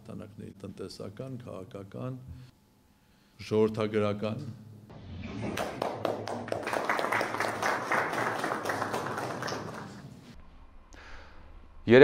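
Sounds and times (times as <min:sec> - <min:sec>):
group applauding: 0:05.2 - 0:10.4.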